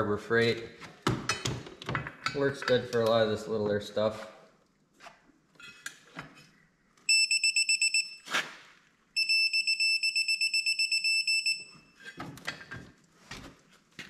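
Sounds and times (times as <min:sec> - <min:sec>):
digital torque wrench beeping: 0:07.1 - 0:08.2.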